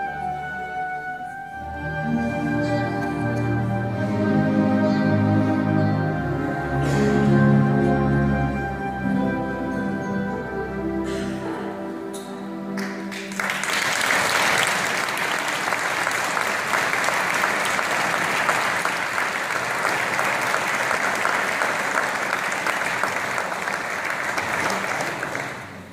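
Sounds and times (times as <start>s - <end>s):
held music chord: 0.0s - 13.4s
audience applause: 12.8s - 25.9s.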